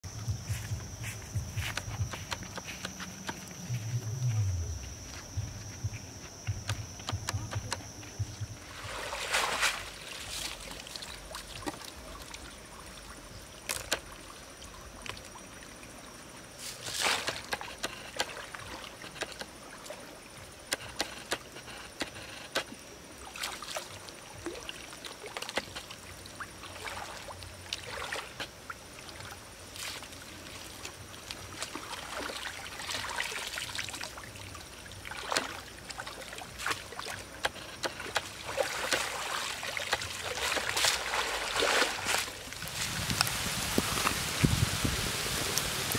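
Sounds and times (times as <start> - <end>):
water splashing and trickling: 7.4 - 20.7, 22.7 - 45.9
baskets sloshing in water: 8.6 - 12.9, 23.3 - 45.9.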